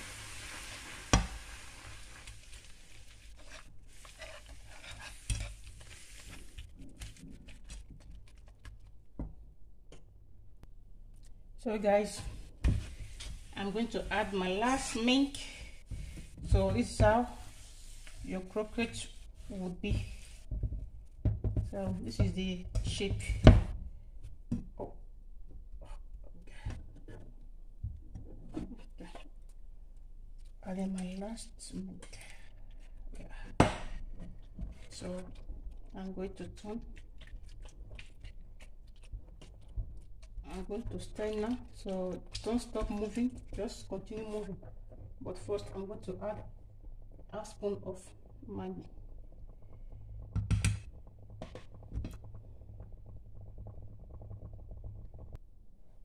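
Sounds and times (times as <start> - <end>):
soft sizzle: 0.0 - 56.0
whisk scraping dough in pan: 0.3 - 8.0
whisk stirring thick batter: 1.9 - 8.8, 32.0 - 48.2.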